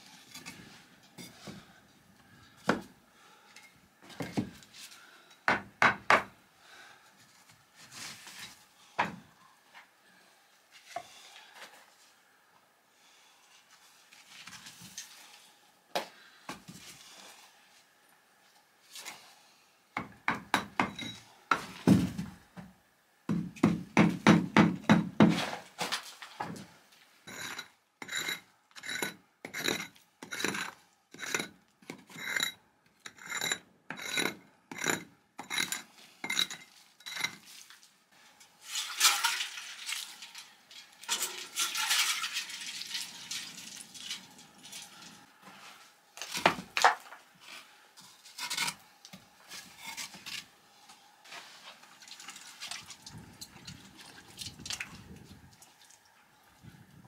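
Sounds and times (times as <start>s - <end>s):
hand tool scraping brick: 27.3s - 37.5s, 48.2s - 48.8s.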